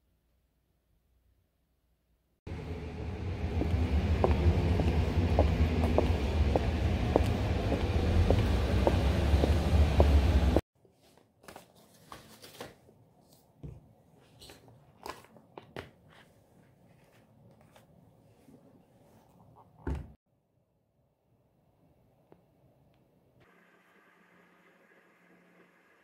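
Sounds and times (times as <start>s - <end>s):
loud low rumble: 2.5s - 10.6s
footsteps: 3.6s - 12.4s.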